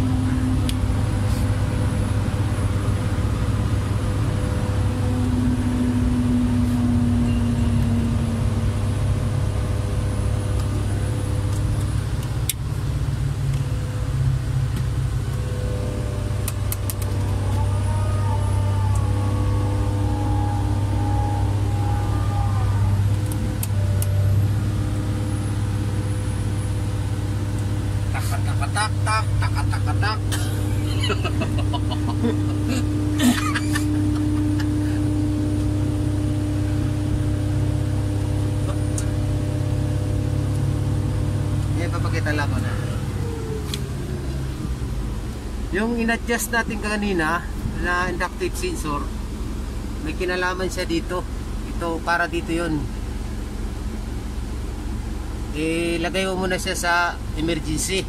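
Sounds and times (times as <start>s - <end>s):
constant hum: 0.0s - 58.0s
diesel engine running: 0.0s - 58.0s
rising whine: 0.0s - 58.0s.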